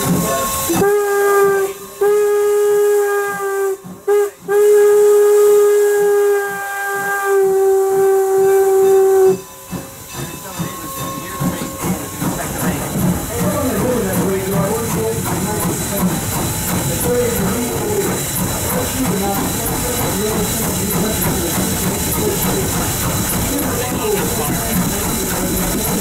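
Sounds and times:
steam whistle blasts: 0.0s - 9.8s.

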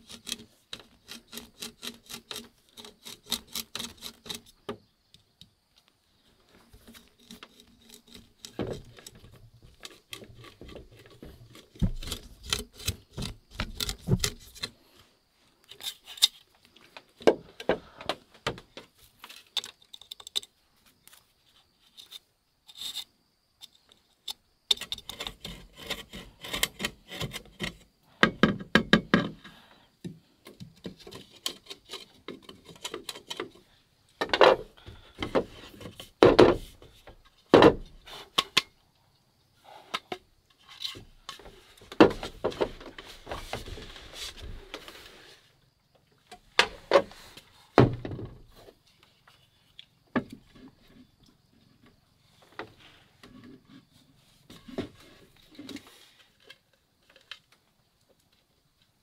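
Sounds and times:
knife scraping bamboo cup: 0.0s - 4.6s, 6.8s - 9.2s, 24.8s - 27.8s.

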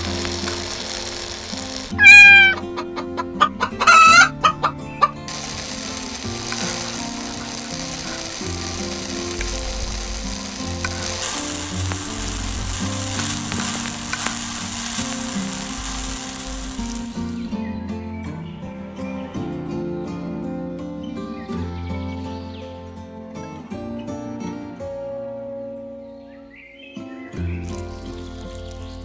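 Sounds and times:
curry sizzling in a pan: 0.0s - 17.6s, 27.5s - 29.0s
background music: 0.0s - 29.0s
rooster crowing: 1.7s - 9.5s
rooster clucking: 2.0s - 5.3s.

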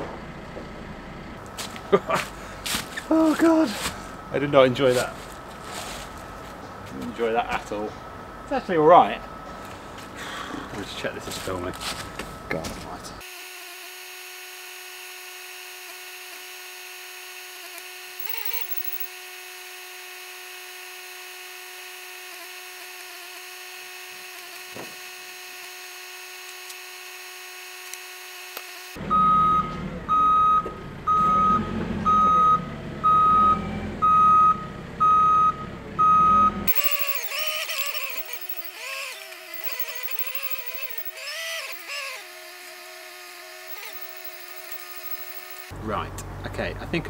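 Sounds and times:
faint steady hum: 18.2s - 19.1s, 36.7s - 38.7s, 43.7s - 45.7s
reversing alarm beeping: 18.2s - 19.1s, 29.1s - 38.8s, 39.6s - 41.8s, 43.7s - 45.7s.

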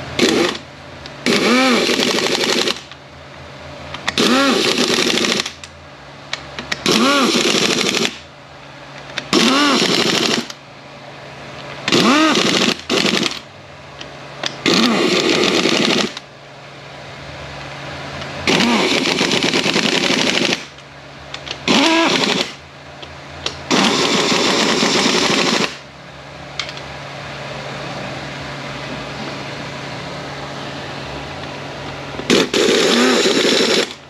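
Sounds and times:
low steady hum: 0.0s - 34.0s
power tool bursts: 0.2s - 0.6s, 1.2s - 2.9s, 4.1s - 5.6s, 6.8s - 8.2s, 9.3s - 10.6s, 11.9s - 13.4s, 14.6s - 16.2s, 18.4s - 20.7s, 21.6s - 22.6s, 23.7s - 25.8s, 32.3s - 34.0s.

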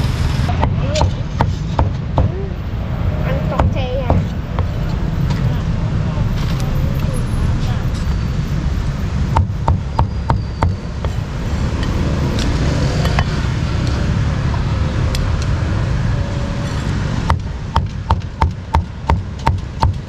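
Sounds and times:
street traffic noise: 0.0s - 20.0s
cleaver chopping meat: 17.3s - 20.0s.

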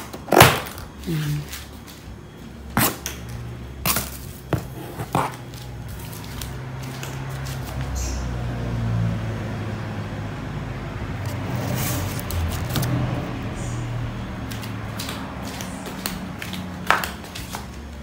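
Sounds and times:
scraping against cardboard: 4.5s - 5.6s.

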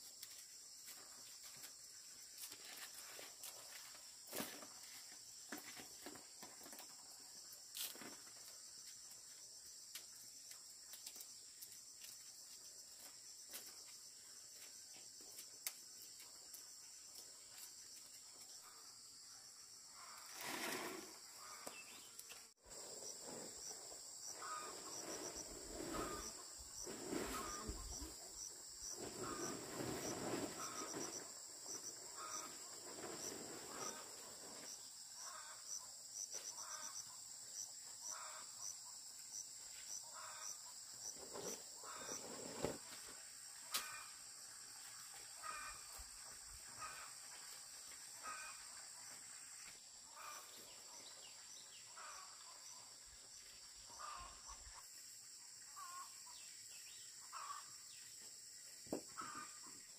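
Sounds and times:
insects trilling: 0.0s - 59.9s
rustling and shuffling: 28.9s - 34.8s.

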